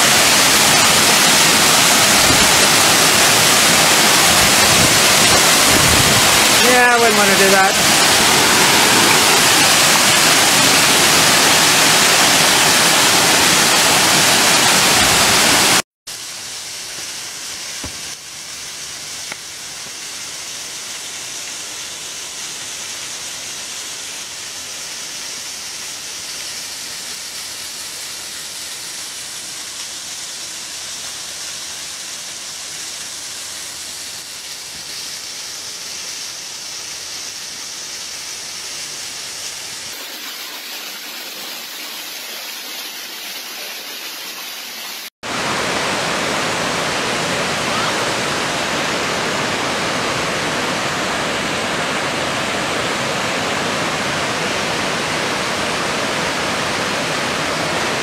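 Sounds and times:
waterfall cascading down rock: 0.0 - 58.0
waterfall rushing: 0.0 - 58.0.

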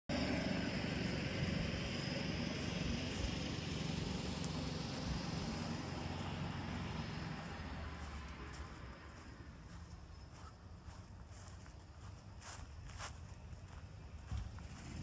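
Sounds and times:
tractor diesel engine idling: 0.1 - 15.0.

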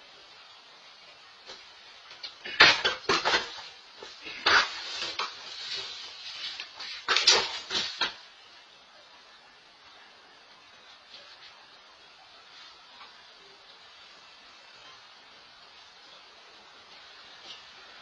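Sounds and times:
objects clattering and banging: 2.2 - 8.3.

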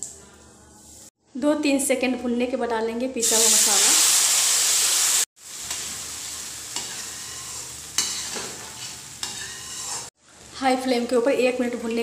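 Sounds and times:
paste sizzling in hot oil: 3.2 - 10.2
steel spoon scraping a pan: 6.7 - 10.2.

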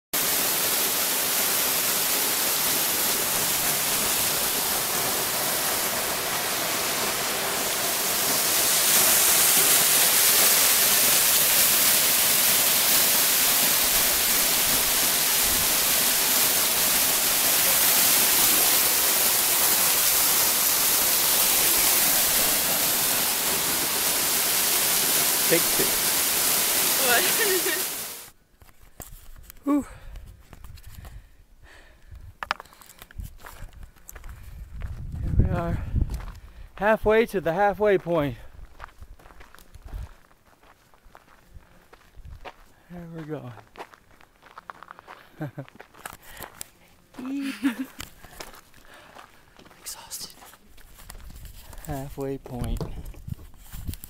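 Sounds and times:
waterfall rushing: 0.2 - 28.3.

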